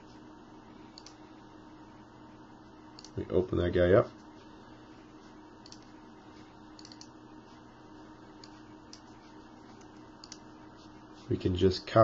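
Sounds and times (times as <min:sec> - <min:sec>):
low room hum: 0:00.0 - 0:12.0
computer clicks: 0:00.9 - 0:01.2, 0:02.9 - 0:03.2, 0:05.6 - 0:05.9, 0:06.7 - 0:07.2, 0:09.8 - 0:10.5.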